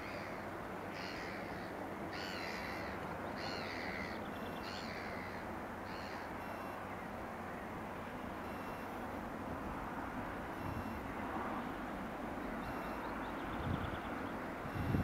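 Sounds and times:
crow cawing: 0.0 - 6.3.

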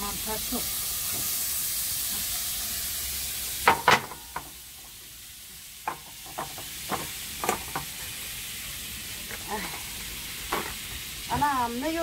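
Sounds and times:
butter sizzling in a pan: 0.0 - 12.0.

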